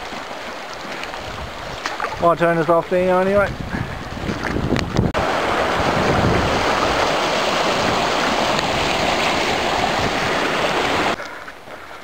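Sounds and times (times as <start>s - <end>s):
river rushing over rocks: 5.1s - 11.2s.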